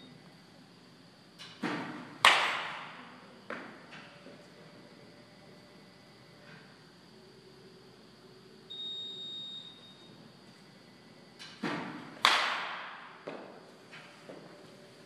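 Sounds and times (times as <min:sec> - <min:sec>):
baseball bat cracking ball: 0:01.7 - 0:03.0, 0:11.6 - 0:13.6.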